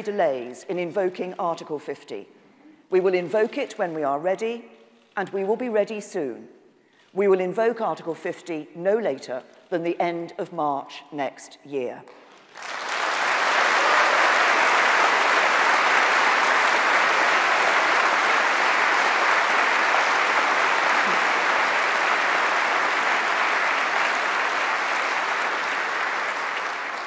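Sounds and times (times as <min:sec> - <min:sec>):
audience applauding: 0:12.3 - 0:27.0.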